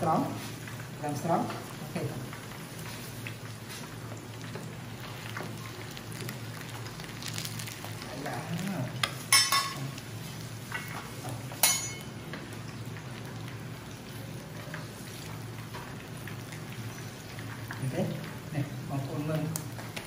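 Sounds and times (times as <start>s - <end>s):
fish deep-frying in oil: 0.0s - 20.0s
metal utensils clinking on pan: 9.3s - 9.8s, 11.6s - 12.1s.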